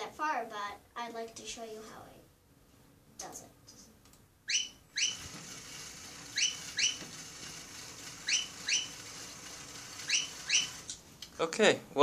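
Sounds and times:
whistle-like chirps: 4.5 - 5.3, 6.4 - 7.0, 8.2 - 9.0, 10.1 - 10.8.

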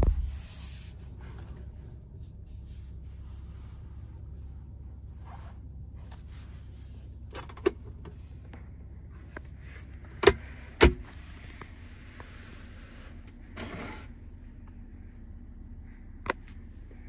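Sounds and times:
low hum in car cabin: 0.0 - 17.0
armrest lid clicks: 10.2 - 11.0.

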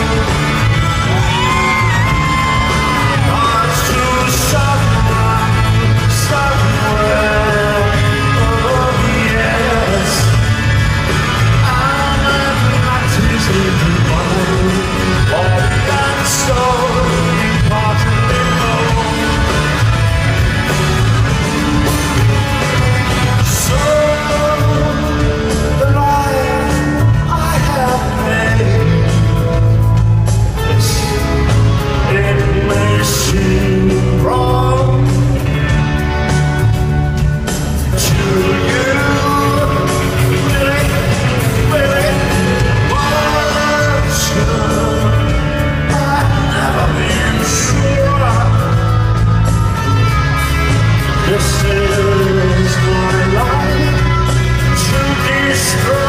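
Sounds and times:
crowd shouts: 0.0 - 4.8
live rock band playing: 0.0 - 56.0
man singing lead vocals: 0.0 - 56.0.

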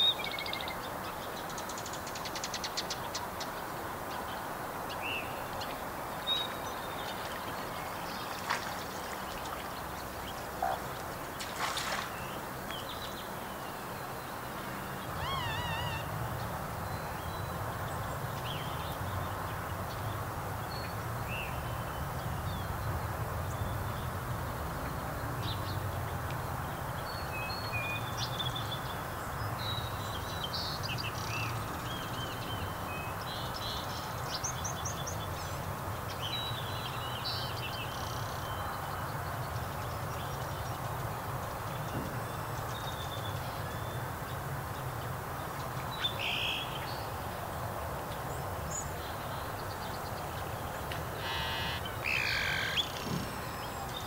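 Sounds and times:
birds chirping and trilling: 15.0 - 16.2, 51.1 - 54.0.

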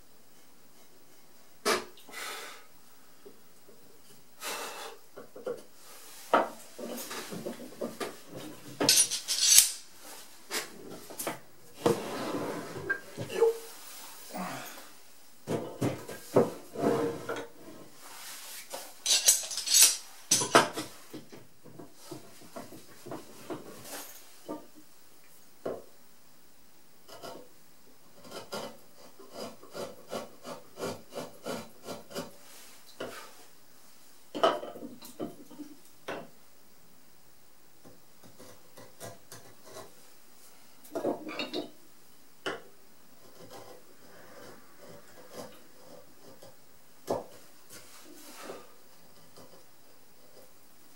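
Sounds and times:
chisel scraping wood: 28.2 - 32.4, 43.2 - 46.6.

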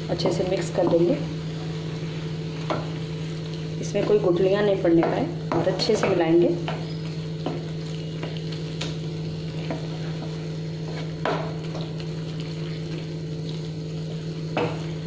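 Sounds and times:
soft sizzle: 0.0 - 15.0
steady low hum: 0.0 - 15.0
spatula scraping a pan: 9.6 - 11.4.

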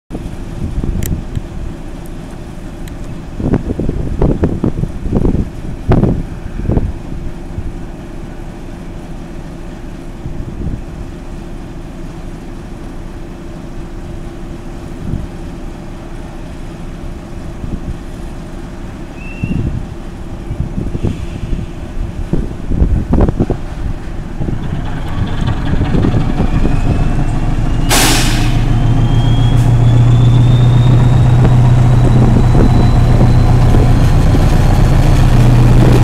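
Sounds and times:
diesel locomotive engine droning: 0.1 - 36.0
wind buffeting microphone: 3.1 - 7.8, 19.4 - 36.0.

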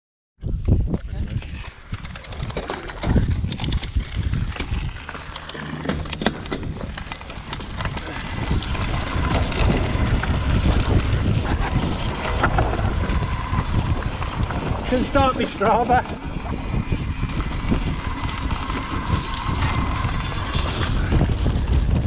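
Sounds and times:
bike rattling: 0.4 - 22.0
bike tyres on dirt: 0.4 - 22.0
wind buffeting microphone: 0.4 - 22.0
sharp clicks and knocks: 4.6 - 7.7.

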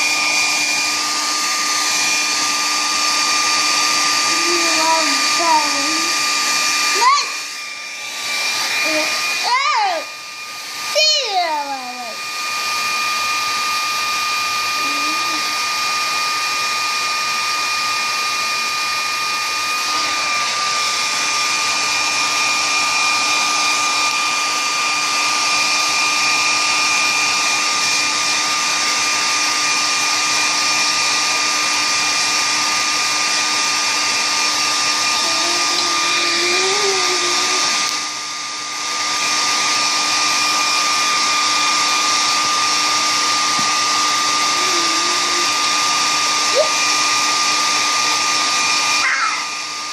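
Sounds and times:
electric appliance motor whirring: 0.0 - 49.9.

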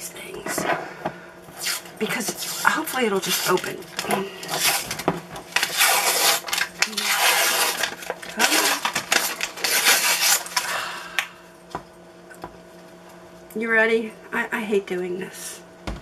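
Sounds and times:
paper wrapper tearing: 1.6 - 10.7.

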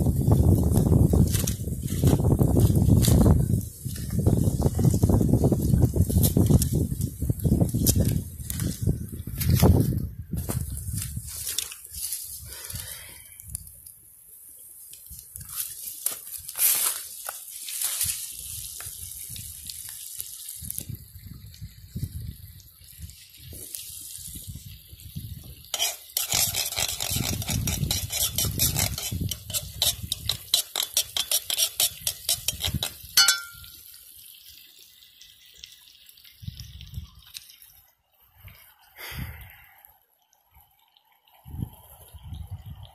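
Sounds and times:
utensil scraping metal pan: 25.7 - 33.6.

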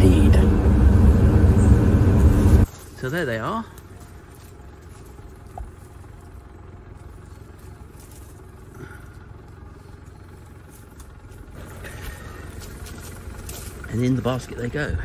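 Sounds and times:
low rumble: 0.0 - 2.9
rustling of dry leaves: 1.6 - 15.0.

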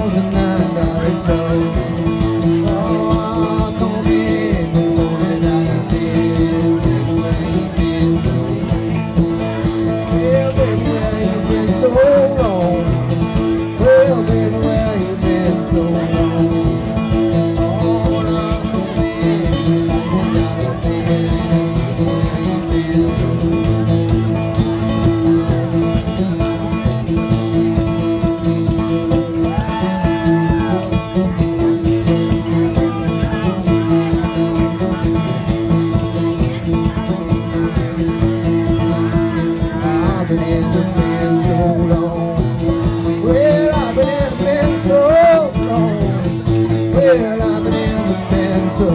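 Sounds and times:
acoustic guitar: 0.0 - 48.9
banjo: 0.0 - 48.9.

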